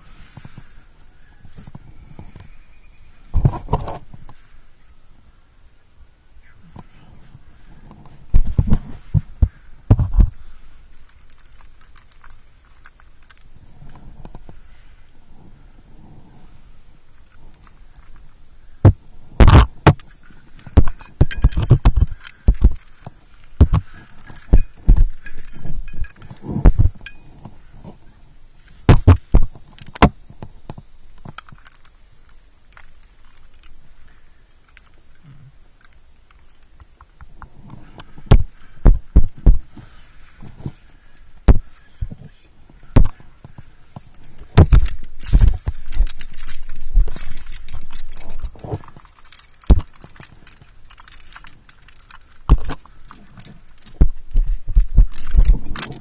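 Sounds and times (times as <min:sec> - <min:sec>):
climbing gear clinking: 0:06.7 - 0:56.0.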